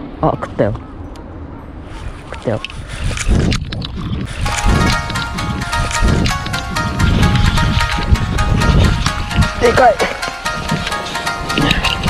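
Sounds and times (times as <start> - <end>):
music with held tones over beat: 4.5 - 12.0.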